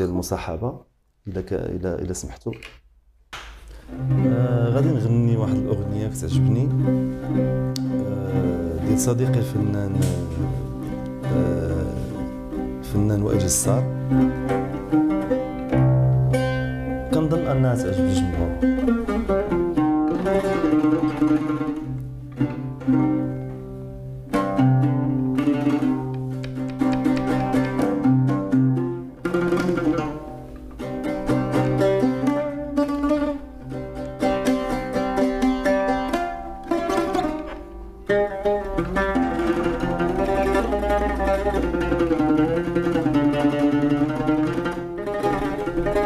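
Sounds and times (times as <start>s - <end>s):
oud plucked notes: 3.4s - 46.0s.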